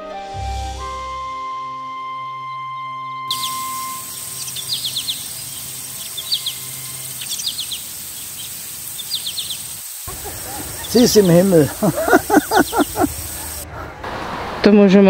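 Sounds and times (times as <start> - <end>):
background music: 0.0 - 7.3
songbird singing: 2.8 - 13.6
garden ambience: 3.3 - 14.0.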